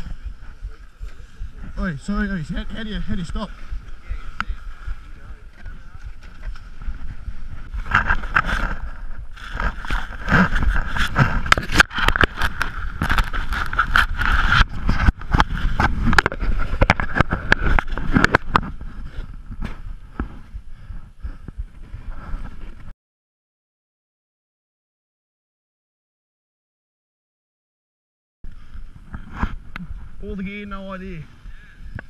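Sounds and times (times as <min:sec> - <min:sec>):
snowboard scraping over snow: 0:00.0 - 0:20.6
wind buffeting microphone: 0:00.0 - 0:22.9.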